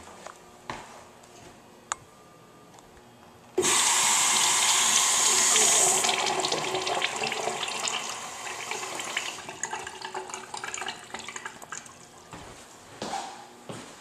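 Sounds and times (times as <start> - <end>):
urinal flush water gurgling: 3.6 - 12.0.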